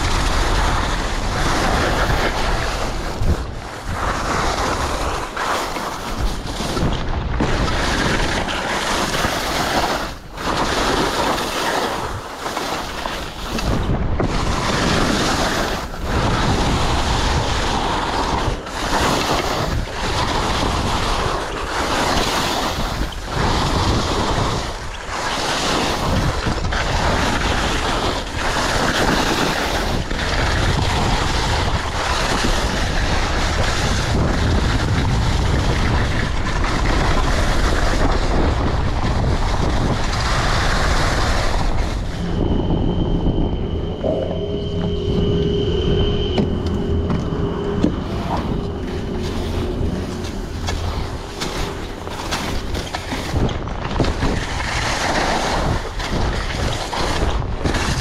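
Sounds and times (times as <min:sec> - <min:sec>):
skis scraping through snow: 0:00.0 - 0:06.8, 0:07.4 - 0:24.6, 0:48.0 - 0:57.2
wind rushing over microphone: 0:00.0 - 0:58.0.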